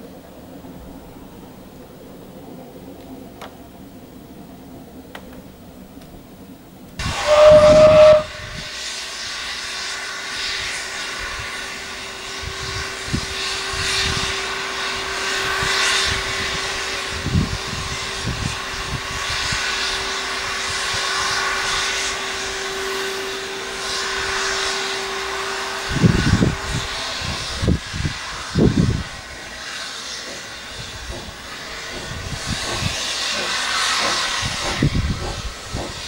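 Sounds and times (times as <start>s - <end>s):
distant steam train rushing: 0.0s - 36.0s
wind buffeting microphone: 7.0s - 8.8s, 12.3s - 22.1s, 25.8s - 29.5s, 30.7s - 33.4s, 34.0s - 36.0s.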